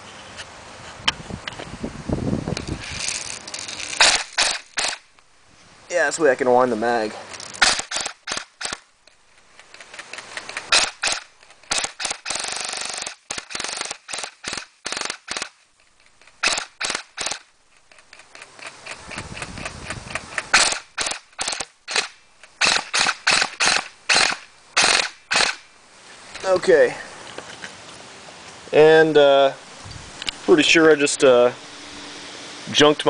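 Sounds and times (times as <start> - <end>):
gun whirring: 2.5 - 5.2, 7.3 - 25.7
airsoft gun firing shots: 4.0 - 5.0, 7.6 - 8.8, 10.7 - 15.6, 16.4 - 17.4, 20.5 - 25.6.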